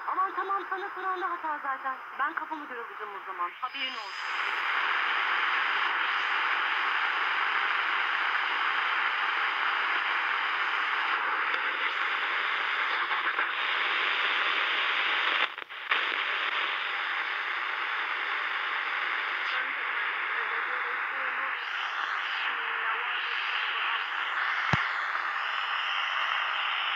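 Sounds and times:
radio static hiss: 0:00.0 - 0:26.9.

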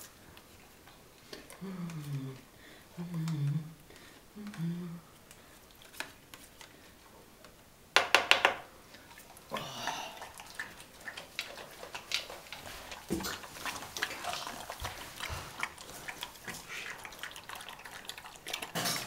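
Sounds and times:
dog chewing and lapping: 0:08.9 - 0:19.0.

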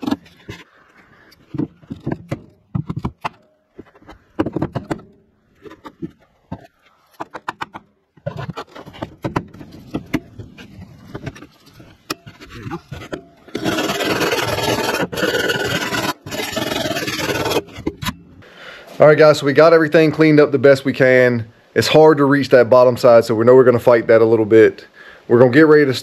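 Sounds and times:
power grinder grinding: 0:13.5 - 0:17.7.

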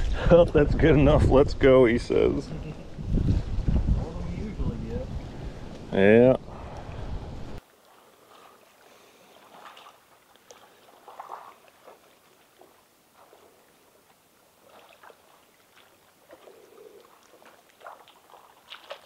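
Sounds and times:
small waves lapping on shore: 0:07.6 - 0:19.0.

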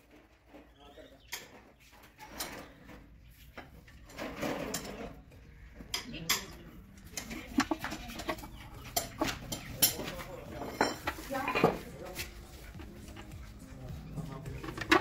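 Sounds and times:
metal tools clinking: 0:07.0 - 0:11.9
metal scraping: 0:07.0 - 0:15.0.

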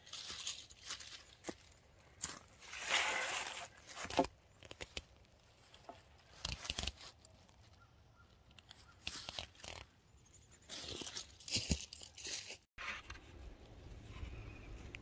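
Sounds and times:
dry leaves rustling: 0:00.0 - 0:04.2, 0:10.7 - 0:12.7.

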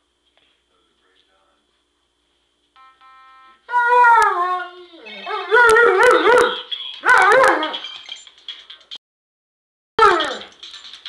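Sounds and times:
phone ringtone: 0:02.8 - 0:03.7
dog howling: 0:03.7 - 0:07.8.

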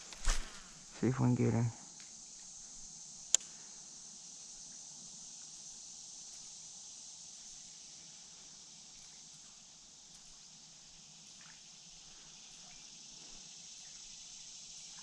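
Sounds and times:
high-pitched insect chorus: 0:00.0 - 0:15.0
sharp click: 0:03.3 - 0:03.5.

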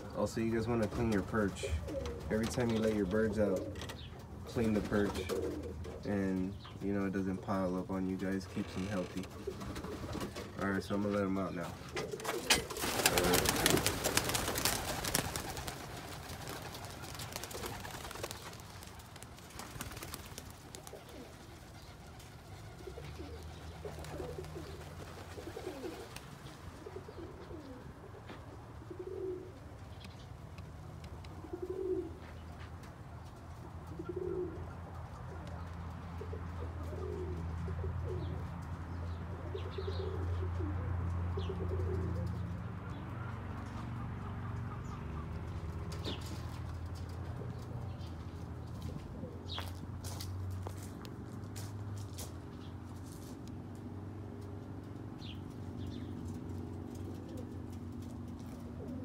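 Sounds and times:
pigeons cooing: 0:00.0 - 0:50.9, 0:54.2 - 0:59.0
rustling flurry: 0:08.4 - 0:26.7.

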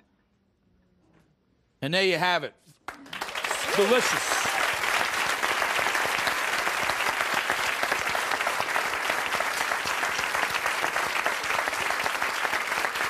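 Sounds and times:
audience applauding: 0:02.9 - 0:13.0.

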